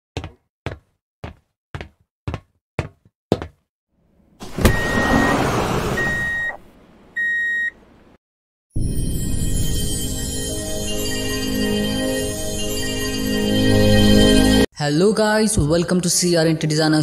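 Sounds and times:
sliding door clunk and hiss: 4.4s - 6.2s
electronic beeps: 6.0s - 6.6s.

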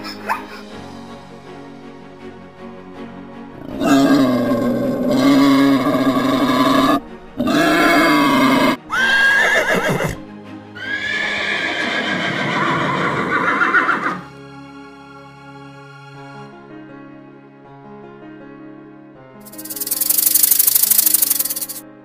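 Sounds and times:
soft background music: 0.0s - 22.0s
horse neighing: 3.6s - 10.2s, 10.8s - 14.2s.

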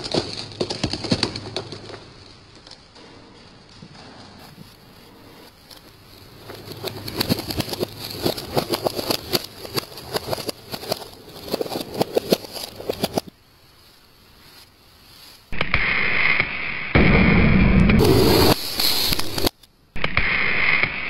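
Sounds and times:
tyre crushing brittle objects: 6.3s - 13.3s.

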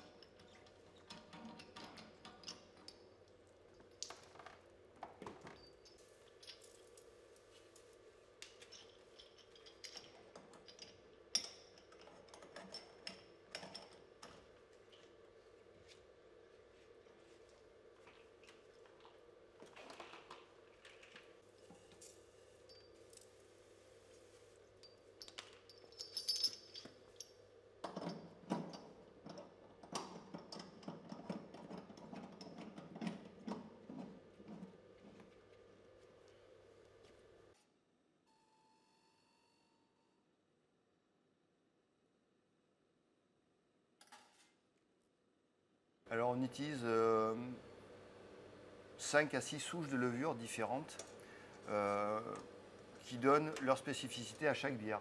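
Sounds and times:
faint machine hum: 0.0s - 40.6s, 46.0s - 55.0s
metallic clicks and clinks: 8.5s - 12.0s, 24.8s - 28.8s
metal fittings clinking: 24.8s - 27.3s.

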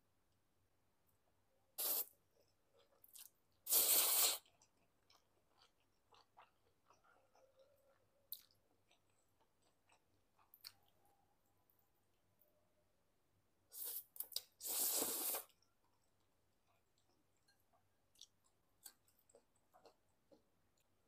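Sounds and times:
soft chewing: 1.1s - 12.6s, 13.7s - 21.0s
loud slurping noises: 3.7s - 4.5s, 13.7s - 15.5s.

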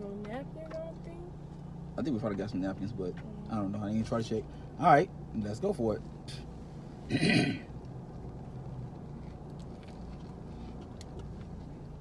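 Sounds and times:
low car hum: 0.0s - 12.0s
chewing clicks: 8.8s - 11.6s.

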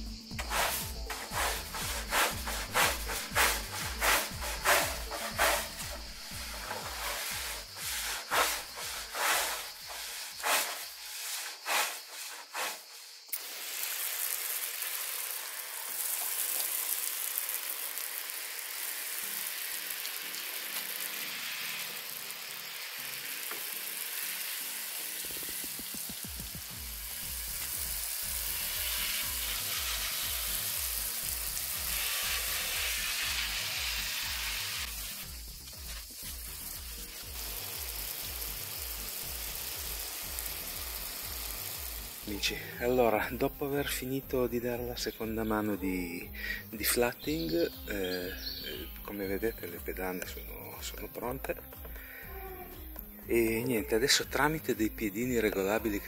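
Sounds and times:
steady hiss: 0.0s - 56.0s
wood being sanded by hand: 0.4s - 13.2s, 25.4s - 42.4s.

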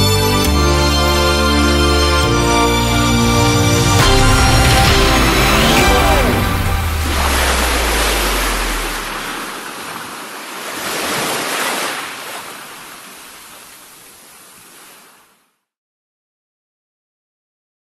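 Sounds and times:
low music note: 1.8s - 9.3s
waves washing in: 2.7s - 15.4s.

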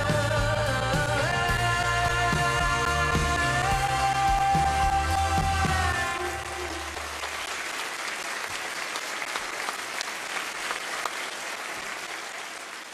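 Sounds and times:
audience applauding: 2.8s - 12.9s.

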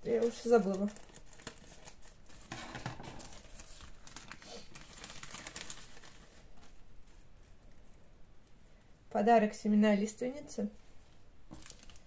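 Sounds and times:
paper packets rustling: 0.0s - 7.6s, 11.5s - 12.0s.

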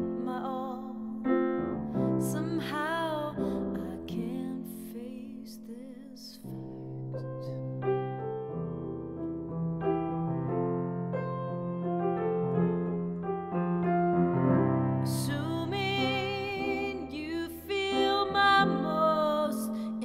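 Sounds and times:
grand piano chords and melody: 0.0s - 5.8s, 6.4s - 20.0s
woman singing: 0.0s - 7.6s, 15.0s - 20.0s.

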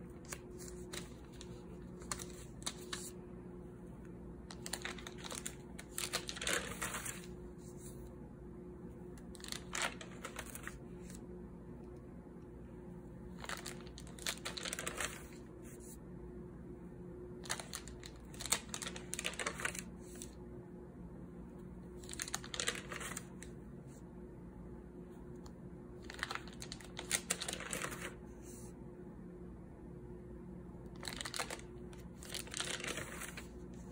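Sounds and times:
paper pages turning: 0.0s - 3.2s, 4.4s - 8.1s, 9.2s - 11.2s, 13.3s - 16.0s, 17.4s - 20.4s, 21.9s - 23.6s, 26.0s - 28.7s, 31.0s - 33.9s
faint steady hum: 0.0s - 33.9s.

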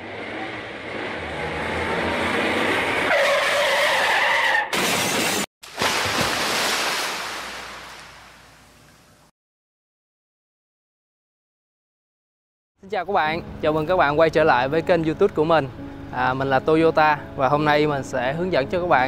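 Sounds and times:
tyres skidding and screeching: 0.0s - 5.5s.

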